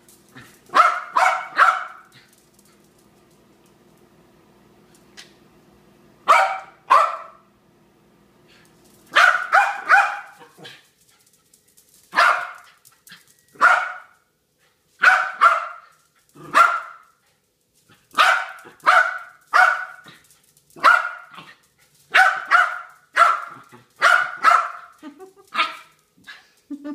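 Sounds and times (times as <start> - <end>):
dog barking excitedly: 0.4 - 2.3, 6.2 - 7.4, 9.1 - 10.9, 12.0 - 14.3, 15.0 - 17.2, 17.9 - 26.5.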